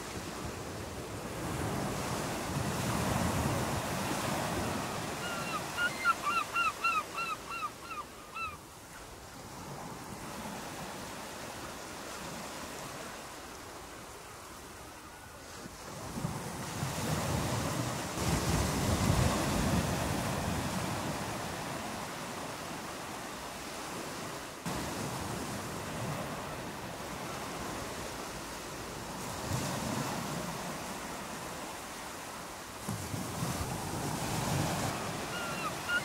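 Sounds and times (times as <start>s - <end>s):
ocean surf washing onto beach: 0.0s - 6.0s, 15.5s - 36.0s.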